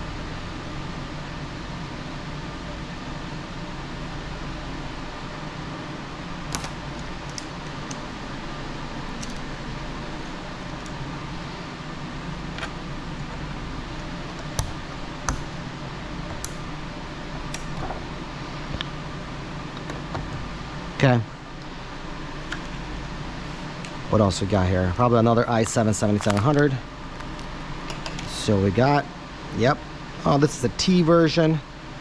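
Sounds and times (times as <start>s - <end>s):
steady background hum: 0.0s - 32.0s
computer hardware clicks and taps: 14.4s - 15.5s, 16.3s - 16.7s, 17.5s - 18.0s.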